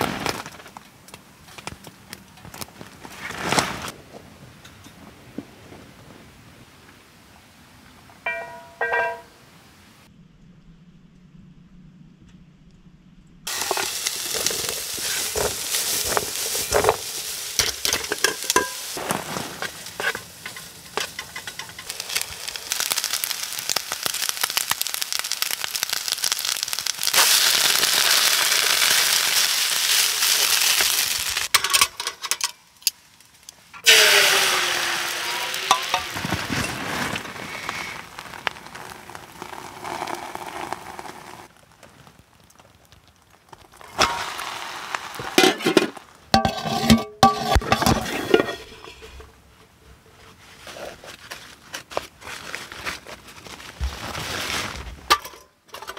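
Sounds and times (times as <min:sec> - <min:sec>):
egg sizzling in hot pan: 0:13.5 - 0:31.5, 0:33.8 - 0:41.6, 0:42.4 - 0:46.6
rice sizzling in frying pan: 0:13.5 - 0:31.8, 0:33.8 - 0:49.0.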